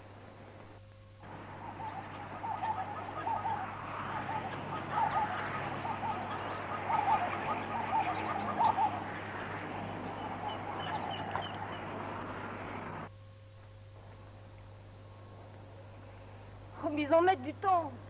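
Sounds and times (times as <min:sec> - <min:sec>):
steady low hum: 0:00.0 - 0:18.0
many birds chirping: 0:01.2 - 0:13.1.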